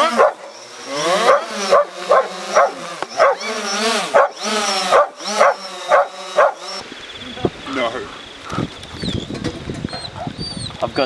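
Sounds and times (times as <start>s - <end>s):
dog barking and yelping: 0.0s - 6.8s, 9.9s - 10.7s
drone propellers whining: 0.0s - 11.0s.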